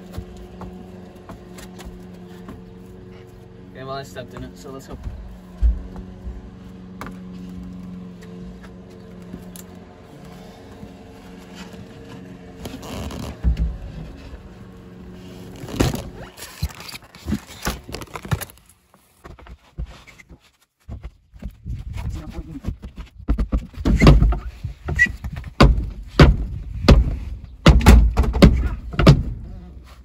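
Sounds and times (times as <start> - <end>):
footsteps on plywood: 0.0 - 3.6, 4.2 - 9.5
engine hum: 0.0 - 20.0
plywood sheet scraping: 10.3 - 20.7.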